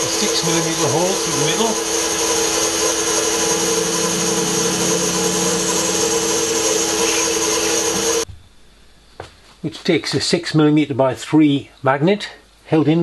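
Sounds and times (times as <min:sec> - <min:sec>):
drill bit drilling metal: 0:00.0 - 0:08.2
drill press motor whining: 0:00.0 - 0:08.3.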